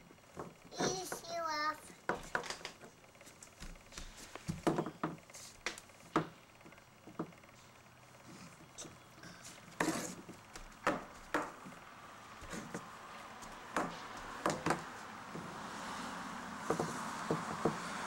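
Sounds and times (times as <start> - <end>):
high heels clunking on wooden boards: 4.5 - 5.2, 9.8 - 11.8, 13.4 - 15.5.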